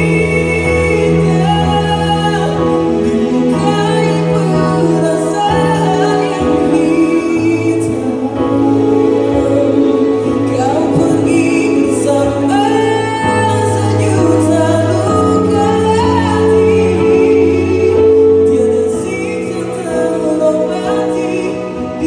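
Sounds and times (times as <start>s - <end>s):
person singing slow song: 0.0s - 22.0s.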